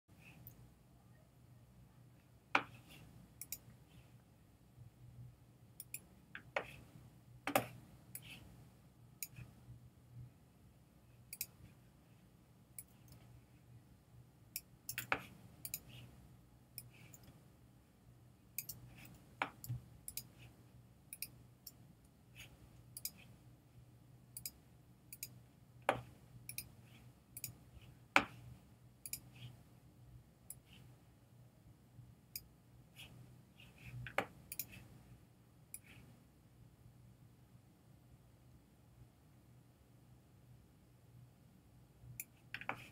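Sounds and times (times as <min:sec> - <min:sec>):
faint low hum: 0:00.1 - 0:42.9
computer mouse clicks: 0:02.6 - 0:03.8, 0:05.8 - 0:06.8, 0:09.2 - 0:09.6, 0:11.3 - 0:11.6, 0:14.6 - 0:16.1, 0:18.6 - 0:20.5, 0:21.1 - 0:21.8, 0:22.9 - 0:23.3, 0:24.4 - 0:26.8, 0:27.4 - 0:27.6, 0:29.0 - 0:29.6, 0:30.5 - 0:30.9, 0:33.8 - 0:34.9, 0:35.7 - 0:36.1, 0:42.2 - 0:42.9.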